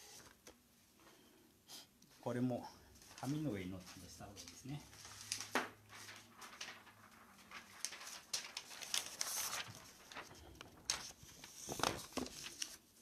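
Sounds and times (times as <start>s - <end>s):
paper rustling and sliding: 0.0s - 0.5s, 3.0s - 13.0s.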